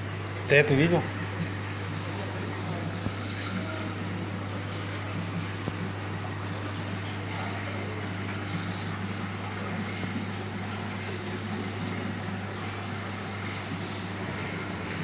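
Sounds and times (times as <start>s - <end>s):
aquarium pump hum: 0.0s - 15.0s.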